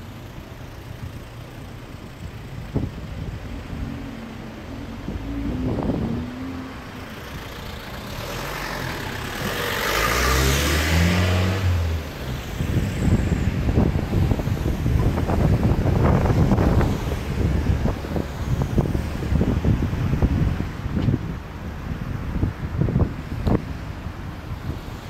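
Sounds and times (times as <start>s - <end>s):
wind buffeting microphone: 2.4s - 8.2s, 11.0s - 25.0s
car passing: 2.7s - 21.0s.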